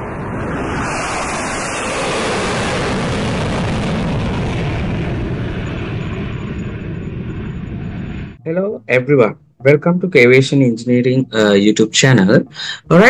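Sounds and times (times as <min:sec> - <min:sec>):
jet airplane flyby: 0:00.0 - 0:08.4.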